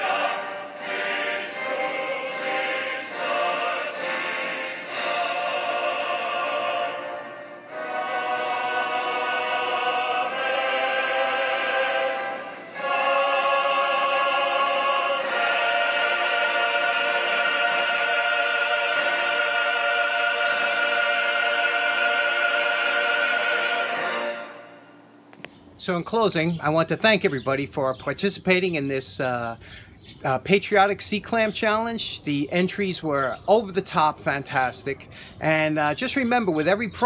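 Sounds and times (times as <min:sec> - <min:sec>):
choir singing held chords: 0:00.0 - 0:25.3.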